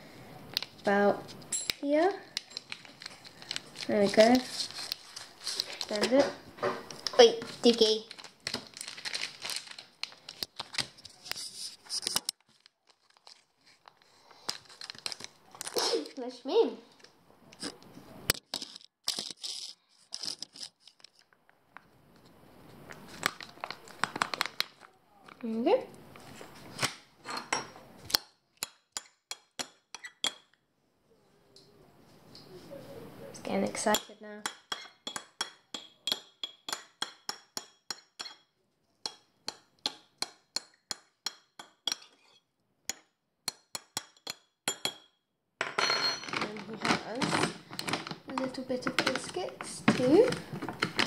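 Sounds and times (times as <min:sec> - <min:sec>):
food pouch crinkling: 0:02.4 - 0:06.0, 0:07.5 - 0:15.8, 0:18.4 - 0:21.3, 0:23.0 - 0:24.9
metal spoon clinking on bowl: 0:42.9 - 0:45.1.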